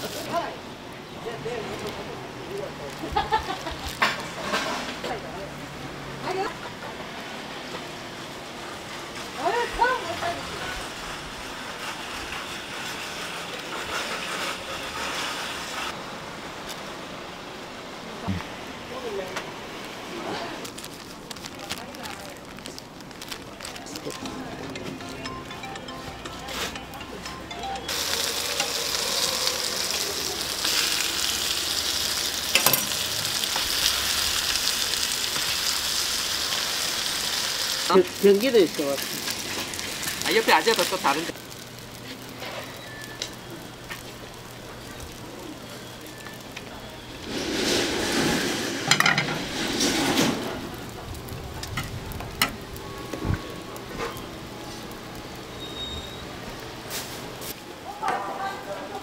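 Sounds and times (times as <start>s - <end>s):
food sizzling on a griddle: 0.0s - 24.6s, 27.8s - 58.0s
metal spatula scraping griddle: 4.0s - 5.1s, 10.2s - 15.9s, 32.3s - 33.6s, 47.0s - 50.8s
spatula clinking on griddle: 32.5s - 33.0s.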